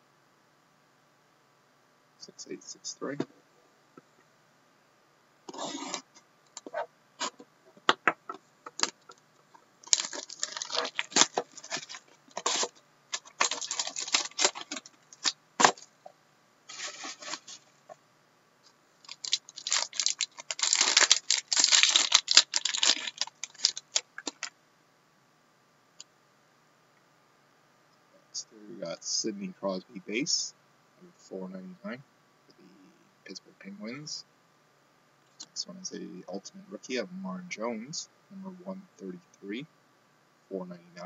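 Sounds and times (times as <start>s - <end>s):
plastic wrapping crinkling and tearing: 9.8s - 15.9s, 16.7s - 17.7s, 19.0s - 24.5s.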